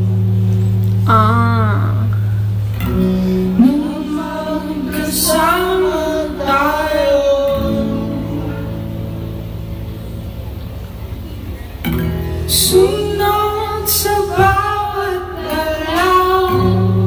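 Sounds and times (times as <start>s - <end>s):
acoustic guitar chords: 0.0s - 17.0s
man singing: 3.3s - 9.2s, 12.5s - 17.0s.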